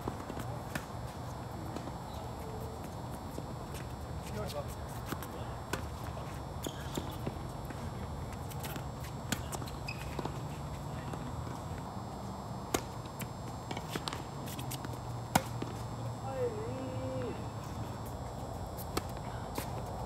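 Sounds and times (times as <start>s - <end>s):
steady low hum: 0.0s - 20.0s
tennis ball bounces: 12.7s - 15.8s.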